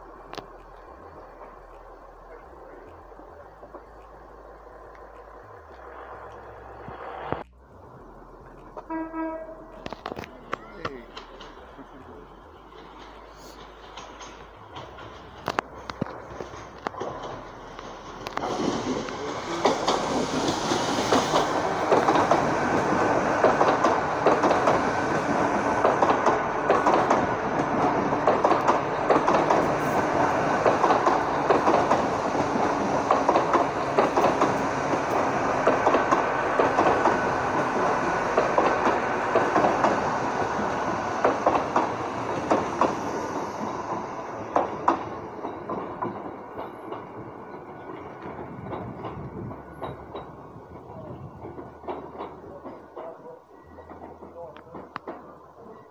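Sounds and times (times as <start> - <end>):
diesel train passing: 0.0 - 55.9
wheels clicking over rail joints: 0.0 - 55.9.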